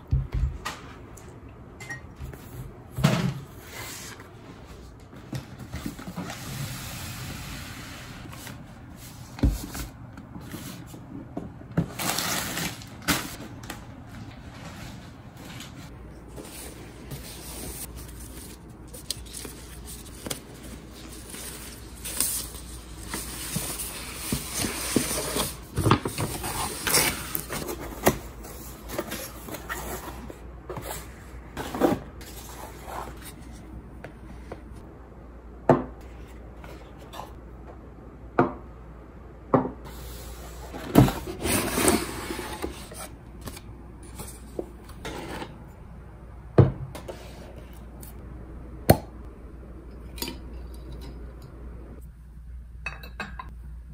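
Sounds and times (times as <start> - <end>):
cardboard boxes rustling: 40.7 - 43.6.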